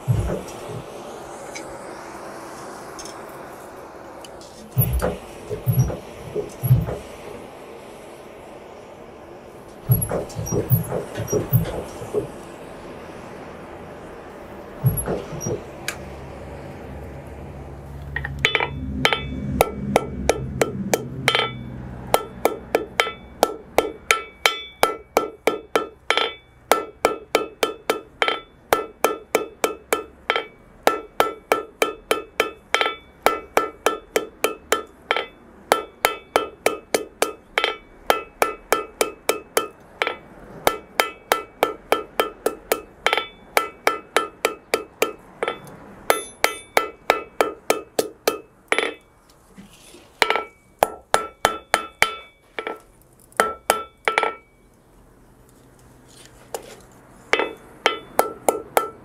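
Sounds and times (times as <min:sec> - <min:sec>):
hammer striking metal on anvil: 0:00.0 - 0:01.0, 0:04.7 - 0:07.1, 0:09.8 - 0:12.4, 0:14.8 - 0:16.0, 0:18.2 - 0:49.1, 0:50.2 - 0:52.8, 0:53.4 - 0:54.6, 0:57.3 - 0:59.0.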